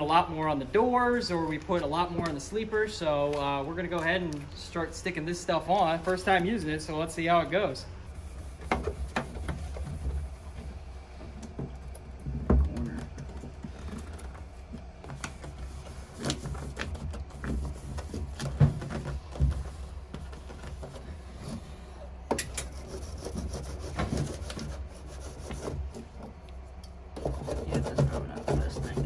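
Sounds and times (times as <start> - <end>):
foil mat rubbing and crinkling: 12.8 - 21.8, 22.7 - 26.2.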